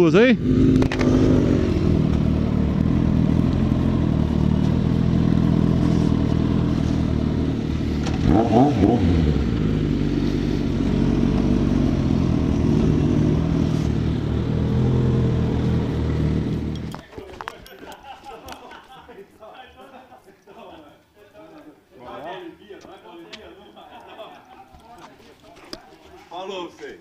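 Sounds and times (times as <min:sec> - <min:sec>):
motorcycle engine at low revs: 0:00.4 - 0:17.0.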